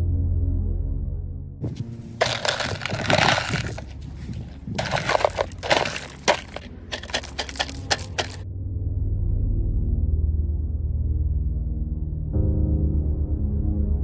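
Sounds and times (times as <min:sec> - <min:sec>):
rocks clattering into tree stump: 0:01.7 - 0:08.4.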